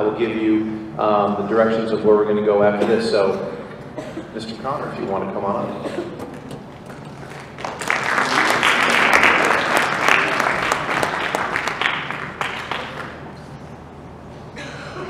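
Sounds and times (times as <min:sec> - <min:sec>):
audience applauding: 0:06.8 - 0:13.4.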